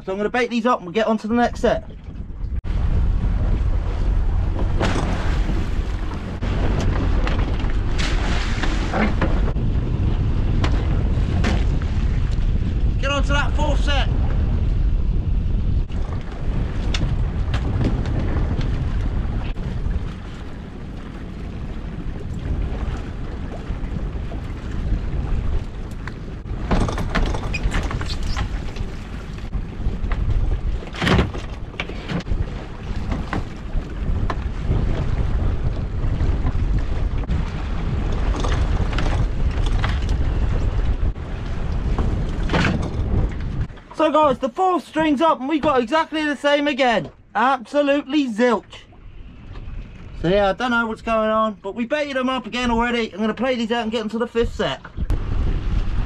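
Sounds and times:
wind buffeting microphone: 0.0s - 47.4s, 48.7s - 56.0s
outboard motor: 2.0s - 12.4s
splashes: 3.7s - 9.6s.

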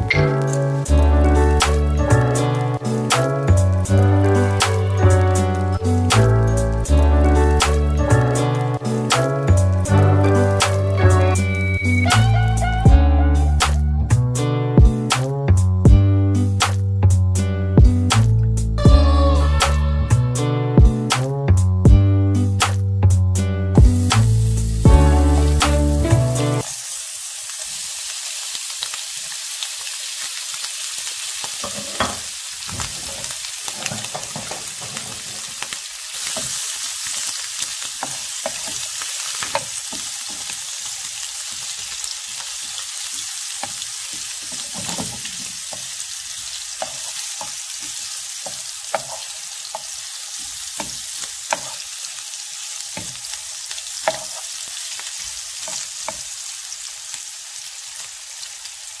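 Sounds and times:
meat sizzling in a pan: 1.6s - 12.3s, 23.8s - 59.0s
wooden spoon scraping a pan: 31.6s - 35.6s.

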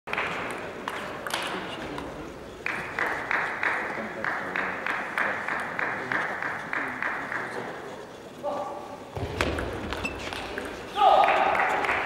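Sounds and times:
crowd clapping in unison: 0.1s - 1.4s, 2.6s - 7.6s, 11.0s - 12.0s
crowd noise: 0.1s - 12.0s.

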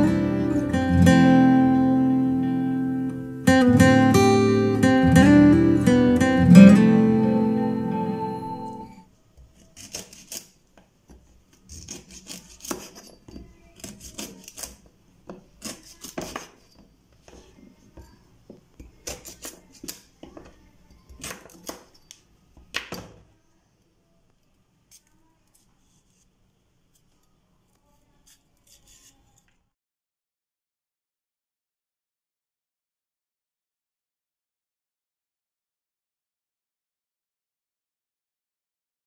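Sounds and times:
knife chopping on wooden board: 9.5s - 10.5s, 11.1s - 16.6s, 18.8s - 20.5s.

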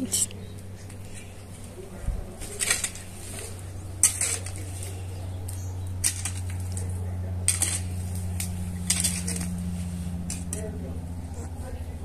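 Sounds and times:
steady low hum: 0.0s - 12.0s
hoe striking soil: 2.4s - 10.8s.

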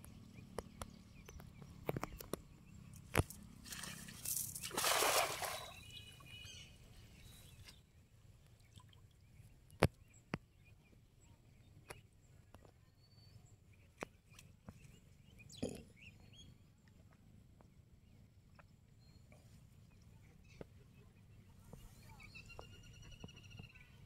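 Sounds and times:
faint stirring water: 3.6s - 7.8s.

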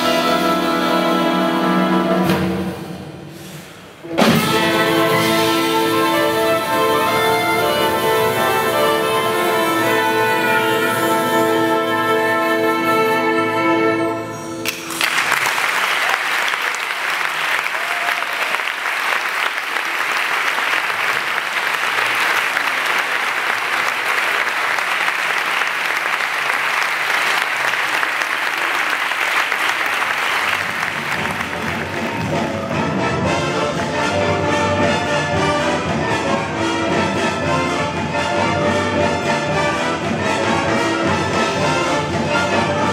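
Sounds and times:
big band playing: 0.0s - 42.9s
audience applauding: 14.7s - 32.7s.

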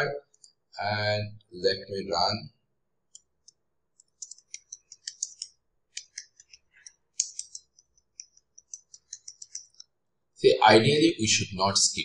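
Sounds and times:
computer keyboard typing: 4.0s - 9.9s.

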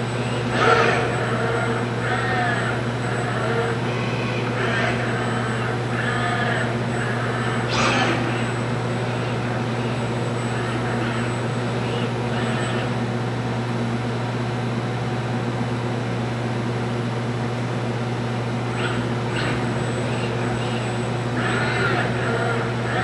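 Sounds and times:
spray booth machine hum: 0.0s - 13.3s.

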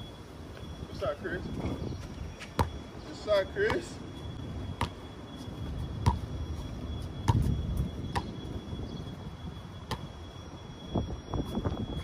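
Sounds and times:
faint high whine: 0.0s - 12.0s
basketball bouncing on concrete: 2.4s - 2.8s, 3.6s - 4.0s, 4.8s - 5.0s, 6.0s - 6.3s, 7.2s - 7.5s, 8.1s - 8.4s, 9.9s - 10.1s.

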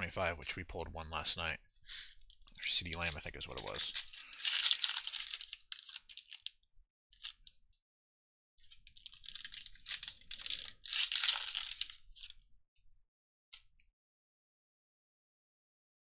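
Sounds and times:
foil wrappers crinkling and tearing: 2.1s - 6.6s, 8.6s - 12.4s.

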